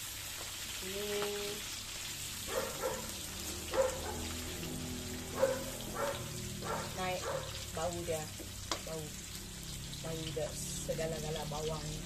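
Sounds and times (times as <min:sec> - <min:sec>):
food sizzling in hot oil: 0:00.0 - 0:12.0
dog barking: 0:02.5 - 0:04.4, 0:05.3 - 0:07.6.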